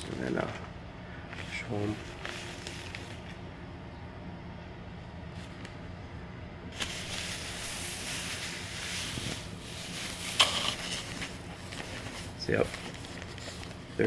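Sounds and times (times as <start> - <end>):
plastic bag and packing rustling: 0.0 - 3.5, 6.7 - 14.0.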